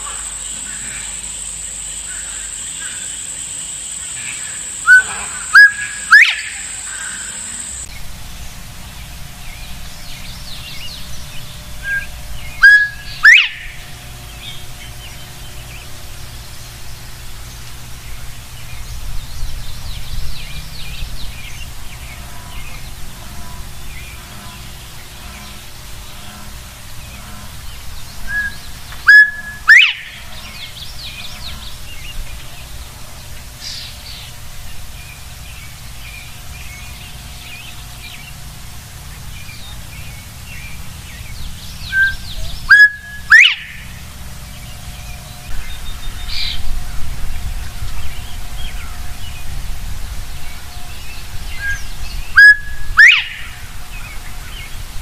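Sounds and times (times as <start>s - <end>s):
birds chirping faintly: 0.0s - 55.0s
bobwhite whistle: 4.8s - 7.5s, 11.8s - 13.8s, 28.3s - 30.2s, 41.8s - 43.8s, 51.6s - 53.5s.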